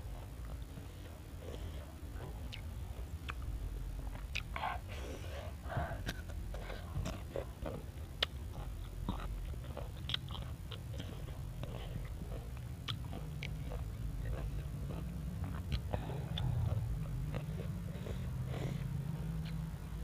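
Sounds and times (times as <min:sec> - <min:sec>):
crunching and chewing: 0:00.0 - 0:20.0
wet mouth sounds: 0:00.1 - 0:20.0
low rumble: 0:10.6 - 0:20.0.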